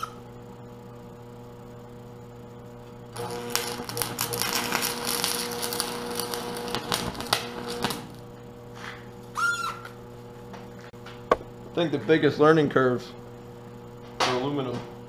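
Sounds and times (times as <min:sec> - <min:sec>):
steady hum: 0:00.0 - 0:15.0
welding arc crackling: 0:03.1 - 0:09.2.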